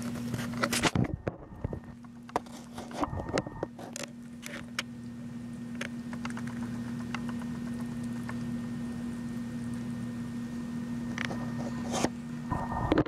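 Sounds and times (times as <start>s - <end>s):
steady low hum: 0.0s - 13.0s
hamster nibbling seeds: 6.1s - 10.1s.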